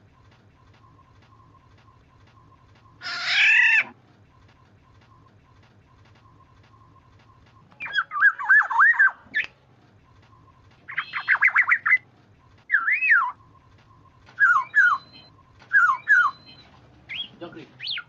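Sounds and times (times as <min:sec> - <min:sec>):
bird fluty whistling calls: 0:07.8 - 0:09.6, 0:10.4 - 0:12.0, 0:12.7 - 0:18.0.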